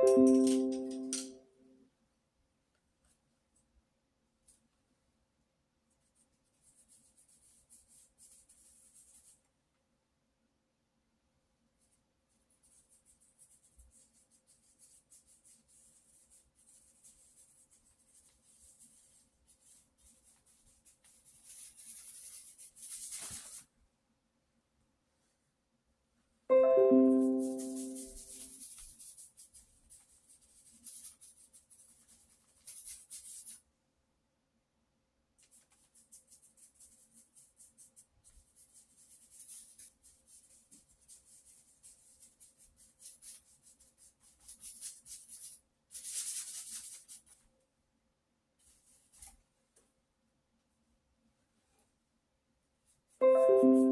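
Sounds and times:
piano-like chord music: 0:00.0 - 0:01.4, 0:26.5 - 0:28.5, 0:53.2 - 0:53.9
paintbrush rubbing on paper: 0:06.0 - 0:09.5, 0:11.8 - 0:23.7, 0:27.2 - 0:33.6, 0:35.4 - 0:47.4, 0:48.6 - 0:49.3.

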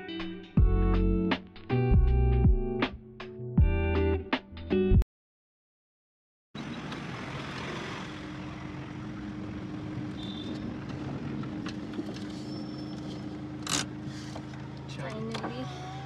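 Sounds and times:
car engine and road noise: 0:06.6 - 0:16.0.

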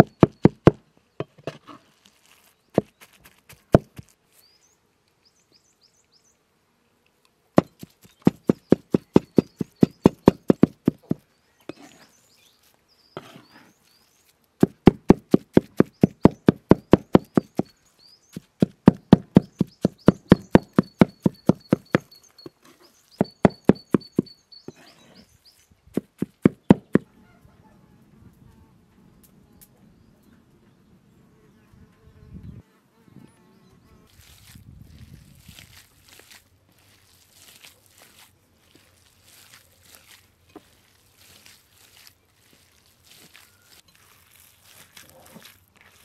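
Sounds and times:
cleaver chopping on wooden board: 0:00.0 - 0:01.6, 0:03.5 - 0:04.0, 0:07.6 - 0:11.8, 0:14.6 - 0:17.7, 0:18.3 - 0:22.1, 0:23.2 - 0:24.8, 0:26.0 - 0:27.1
birds chirping: 0:07.6 - 0:14.4, 0:15.7 - 0:27.8.

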